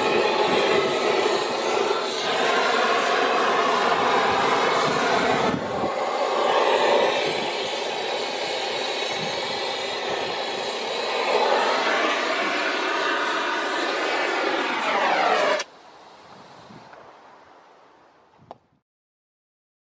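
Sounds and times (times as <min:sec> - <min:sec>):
machine running with whine: 0:00.0 - 0:15.7.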